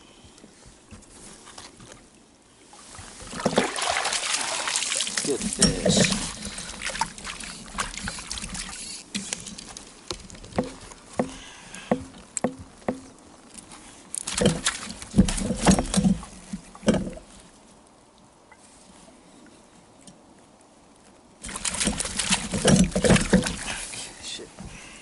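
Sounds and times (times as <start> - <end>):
light knocks and taps on boat: 9.1 - 13.2.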